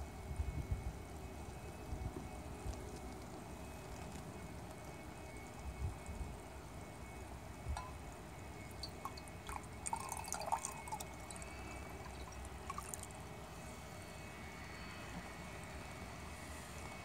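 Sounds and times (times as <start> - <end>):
glass clinking: 7.8 - 8.0, 8.8 - 11.4
liquid drips and splashes: 8.7 - 13.2.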